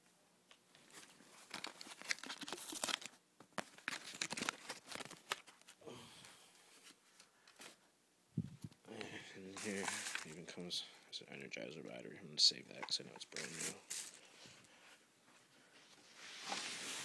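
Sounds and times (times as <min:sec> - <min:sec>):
packaging crinkling and tearing: 0:00.9 - 0:05.8, 0:09.6 - 0:10.4.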